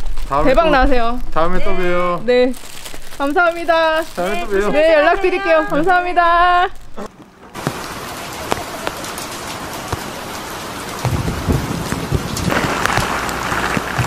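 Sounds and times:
rain pattering: 0.0 - 14.0
single raindrops ticking: 6.7 - 14.0.

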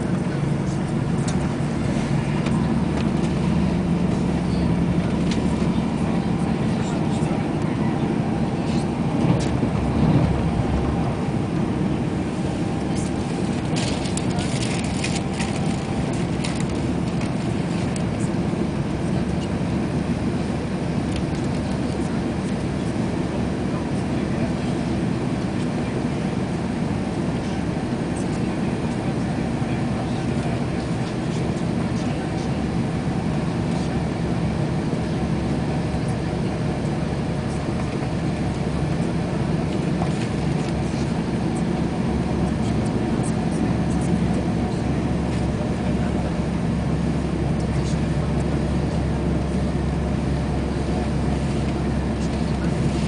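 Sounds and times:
train wheels rumbling on rails: 0.0 - 18.3
constant hum: 0.0 - 53.0.

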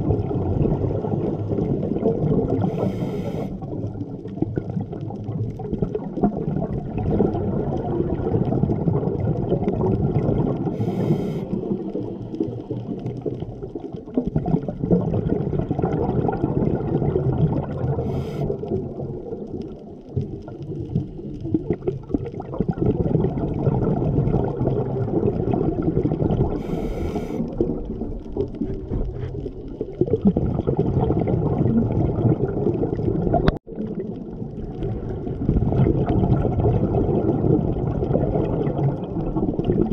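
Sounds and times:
muffled underwater bubbling exhalations: 0.0 - 39.9
regulator inhalation hiss: 2.7 - 3.6, 10.8 - 11.6, 26.6 - 27.4.

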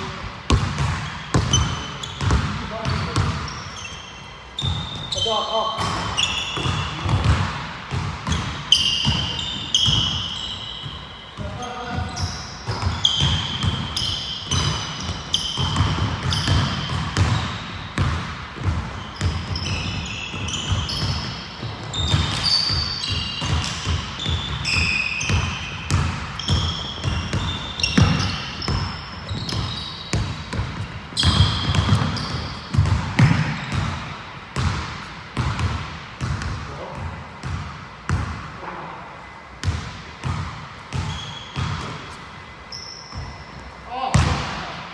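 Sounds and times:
sneakers squeaking: 0.0 - 44.9
basketball dribbled on hardwood floor: 0.5 - 3.5, 6.6 - 10.1, 11.4 - 38.4.

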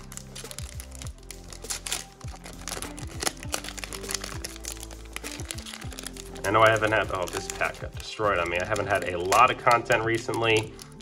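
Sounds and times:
background music with bass line: 0.0 - 11.0
wrapper tearing and crinkling: 0.0 - 11.0.

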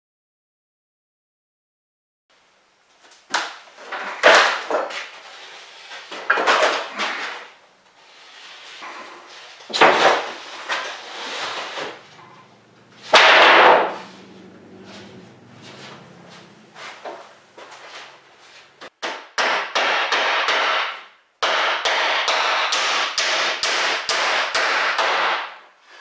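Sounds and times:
quiet shuffling: 14.1 - 18.9.

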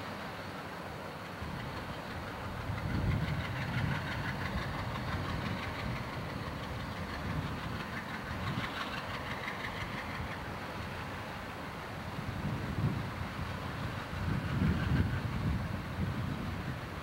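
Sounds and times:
diesel locomotive engine rumble: 0.0 - 17.0.

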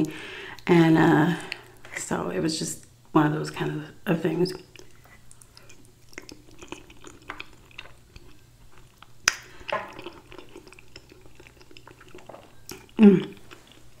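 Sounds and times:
person chewing food: 4.6 - 14.0.

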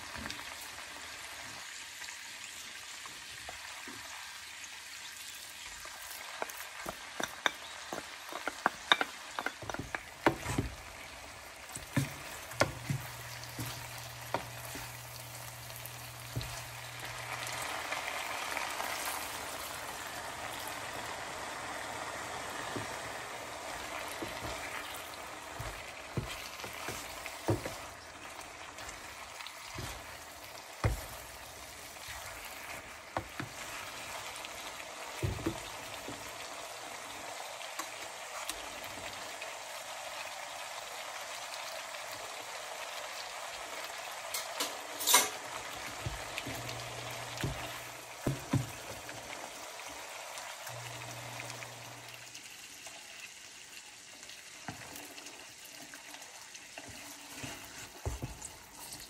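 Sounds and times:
meat and beans sizzling in a pan: 0.0 - 59.0
wooden spatula stirring: 6.0 - 11.1, 11.7 - 17.6, 22.6 - 36.4, 45.7 - 49.2, 56.8 - 58.8
spatula knocking against pan: 6.5 - 10.8, 25.6 - 27.8, 30.8 - 31.2.

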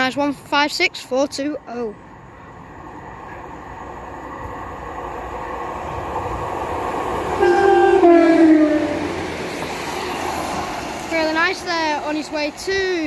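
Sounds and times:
diesel train approaching: 1.6 - 13.0
two-tone train horn: 7.4 - 9.4.

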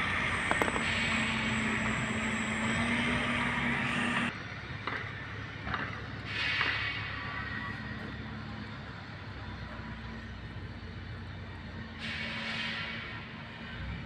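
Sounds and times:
machine humming and hissing: 0.0 - 4.3.

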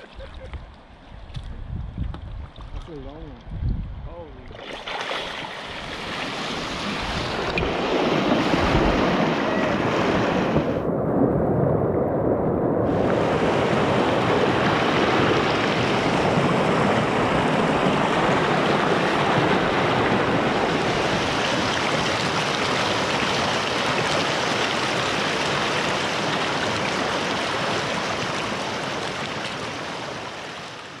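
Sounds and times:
river whitewater rushing: 12.9 - 31.0.

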